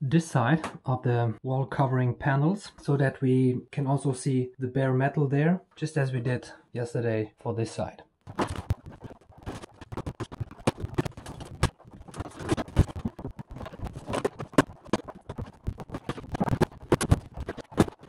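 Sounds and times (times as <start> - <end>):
panels cracking and scraping: 8.3 - 18.0.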